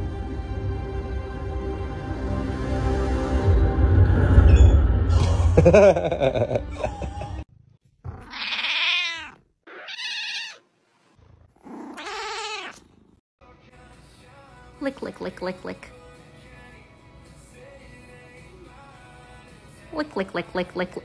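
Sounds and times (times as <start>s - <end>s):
film soundtrack music: 0.0s - 7.4s
deep rumble: 2.8s - 5.7s
cat meowing: 8.1s - 10.6s, 11.7s - 13.0s.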